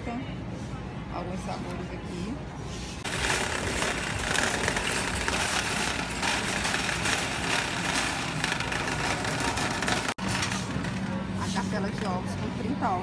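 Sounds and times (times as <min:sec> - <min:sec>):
shopping cart rattling on tiles: 0:03.0 - 0:11.2.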